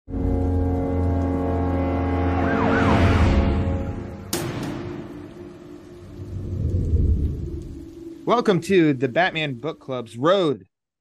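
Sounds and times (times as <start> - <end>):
deep droning chord: 0.1 - 8.2.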